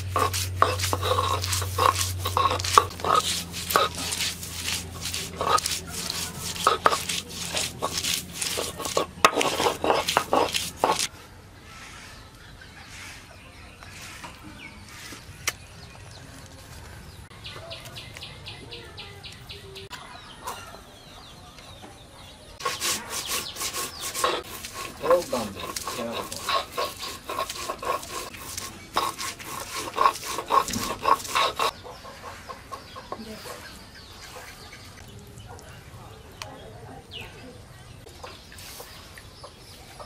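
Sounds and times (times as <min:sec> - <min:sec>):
stone roller grinding on stone: 0:00.0 - 0:11.1, 0:22.6 - 0:31.8.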